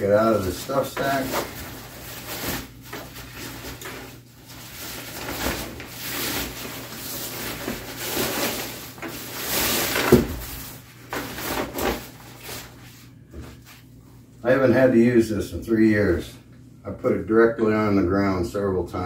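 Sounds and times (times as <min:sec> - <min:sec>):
nylon sack rustling: 0:00.0 - 0:12.8.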